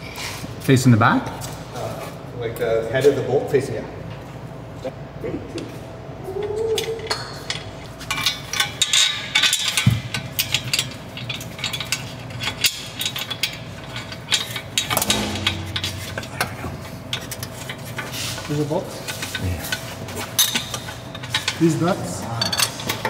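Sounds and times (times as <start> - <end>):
metal exhaust parts clinking: 7.1 - 23.0.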